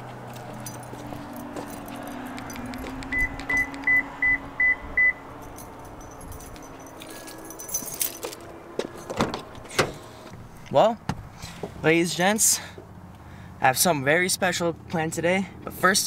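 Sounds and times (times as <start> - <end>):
car keys jingling: 0.2 - 4.0, 5.3 - 9.7.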